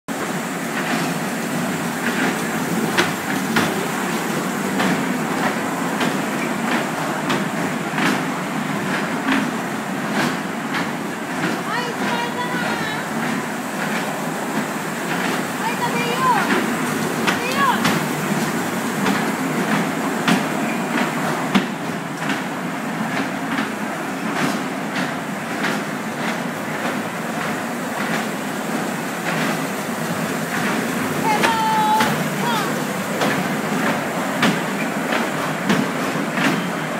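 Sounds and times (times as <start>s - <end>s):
kiddie train rumbling: 0.1s - 36.9s
wheels clicking over rail joints: 0.8s - 22.6s.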